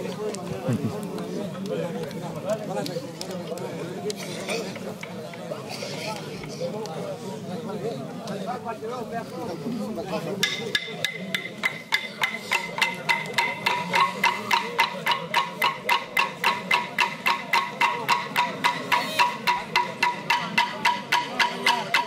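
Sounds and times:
wooden clapsticks beating: 10.4 - 22.0.

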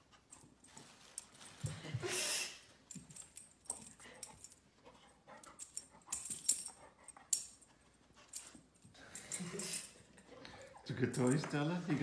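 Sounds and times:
rustling and light knocks: 0.1 - 2.0.

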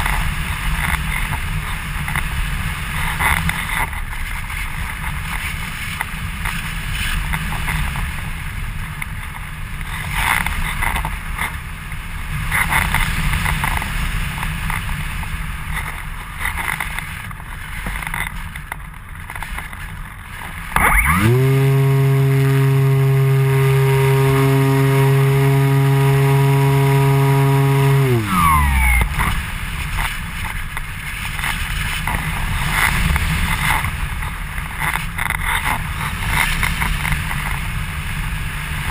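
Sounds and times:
model motor and propeller: 0.0 - 38.9
airflow rushing over camera: 20.6 - 34.7.

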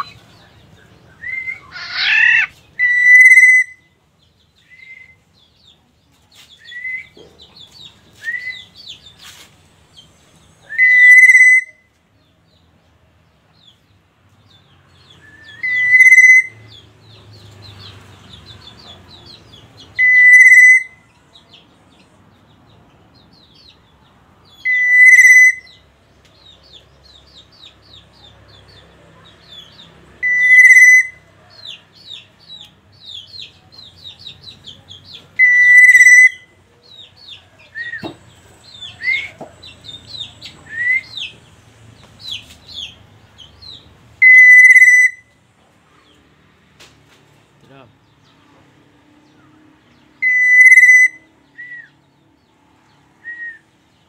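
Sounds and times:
bird whistled note: 44.2 - 45.3, 50.2 - 51.9.

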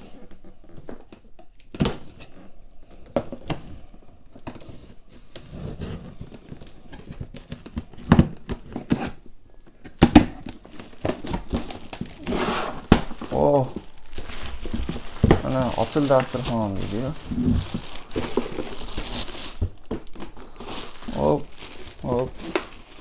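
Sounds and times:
hissing scrape: 4.9 - 7.2, 12.3 - 12.9.

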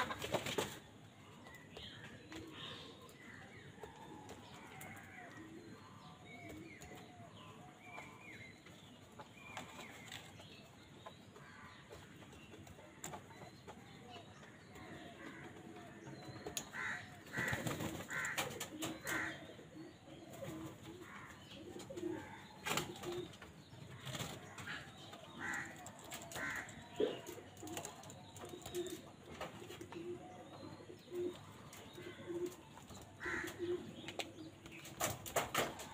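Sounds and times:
crows calling: 15.1 - 19.7, 24.6 - 27.3, 33.2 - 33.8.

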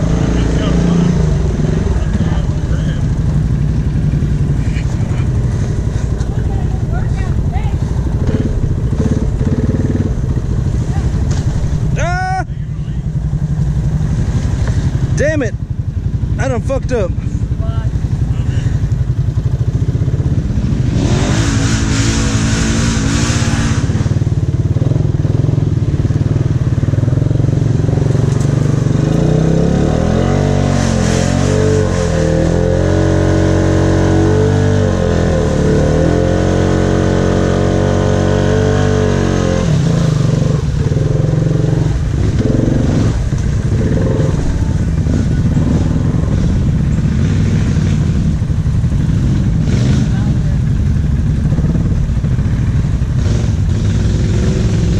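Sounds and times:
atv engine revving: 0.0 - 54.9
water splashing: 13.5 - 15.2.

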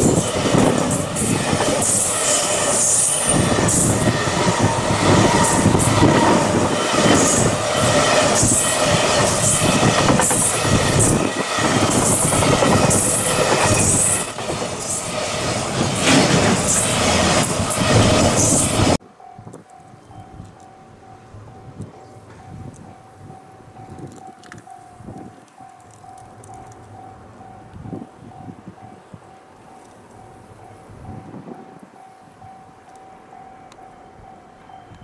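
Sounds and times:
high-pitched metallic wheel squeal: 0.0 - 9.8
train wheels rumbling and clattering: 0.0 - 19.6.

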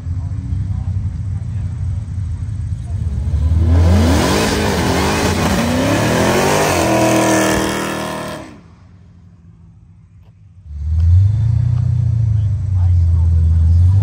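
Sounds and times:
car accelerating hard: 2.8 - 8.8, 10.6 - 14.0.

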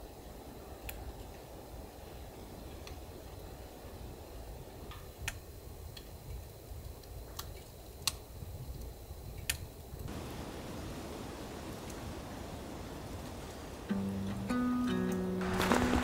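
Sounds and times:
steady hiss: 0.0 - 16.0
wood fire crackling: 0.0 - 16.0.

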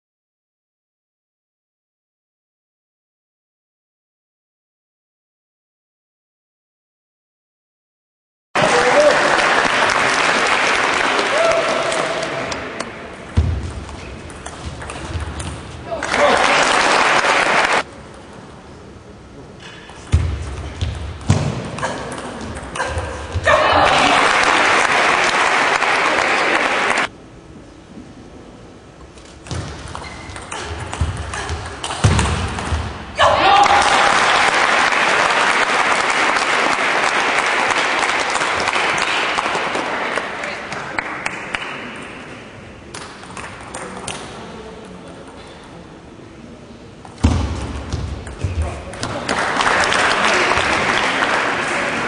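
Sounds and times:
spectators clapping: 8.6 - 13.0, 15.9 - 17.9, 23.8 - 27.1, 33.5 - 42.3, 49.0 - 52.0
table tennis ball hits: 29.5 - 33.0.

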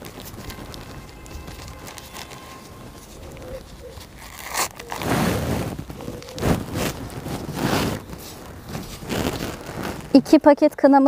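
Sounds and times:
paper packet rustling: 0.0 - 10.4.

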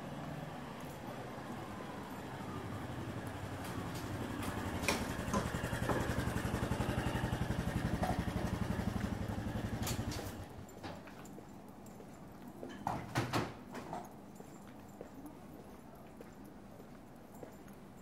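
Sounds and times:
vehicle engine running: 1.6 - 10.6.

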